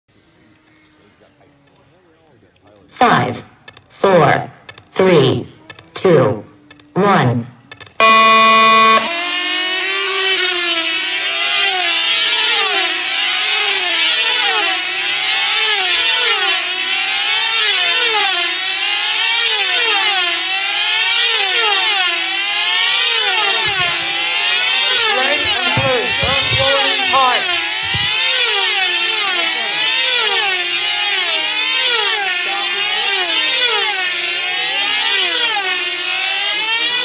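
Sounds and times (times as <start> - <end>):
model aircraft engines buzzing: 0.1 - 37.0
low thumps: 23.4 - 28.7.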